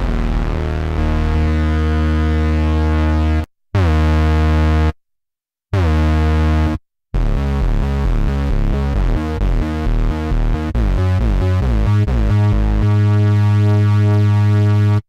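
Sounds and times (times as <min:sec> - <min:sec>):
synthesizer chords: 0:00.0 - 0:04.3, 0:07.2 - 0:15.0
synthesizer bass notes: 0:00.0 - 0:04.9, 0:05.8 - 0:15.0.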